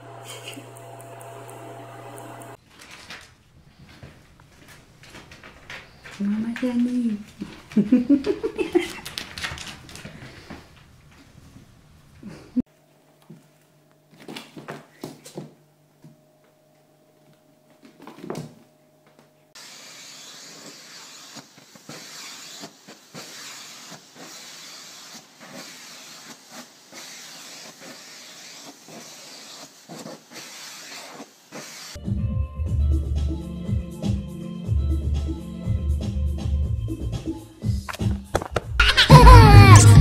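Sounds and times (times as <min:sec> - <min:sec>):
vacuum cleaner hissing airflow: 0:19.6 - 0:32.0.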